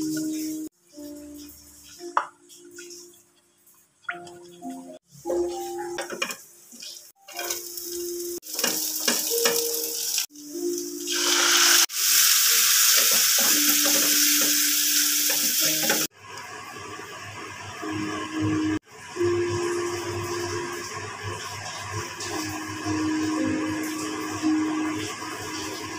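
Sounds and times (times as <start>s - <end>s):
sauce sizzling in frying pan: 5.3s - 25.9s.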